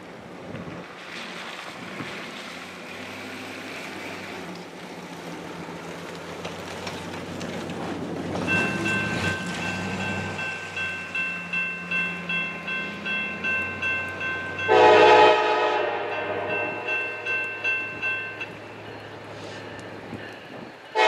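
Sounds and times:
diesel locomotive engine rumble: 0.0 - 21.0
ringing warning signal: 8.5 - 18.6.

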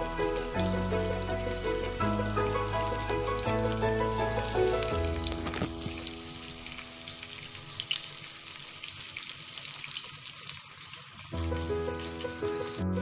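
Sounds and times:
background music: 0.0 - 7.9, 11.4 - 13.0
onions sizzling in a pot: 0.0 - 13.0.

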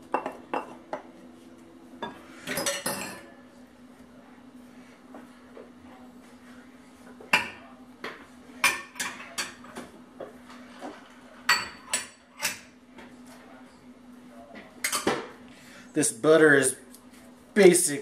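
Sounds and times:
glass bowls clinking: 2.0 - 3.3.

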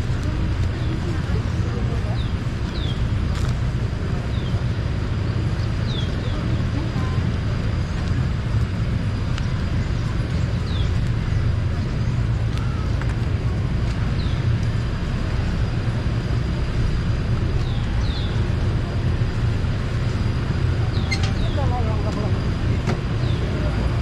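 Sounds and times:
street ambience rumble and hiss: 0.0 - 24.0.

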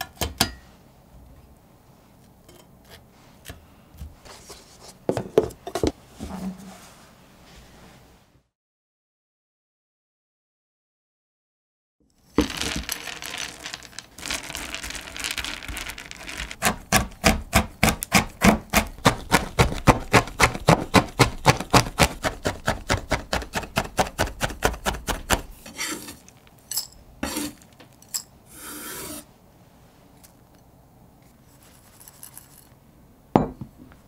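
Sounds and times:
knife chopping chocolate on board: 16.6 - 25.5
blade scraping across board: 25.6 - 26.3, 27.2 - 27.6, 28.5 - 29.3.

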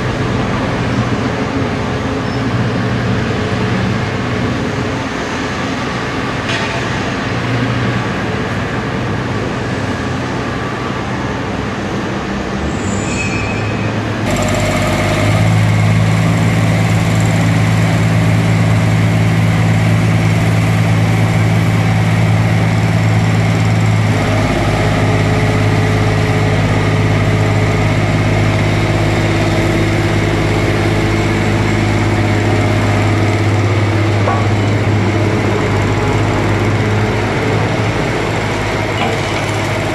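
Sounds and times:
excavator diesel engine running: 14.2 - 39.9.

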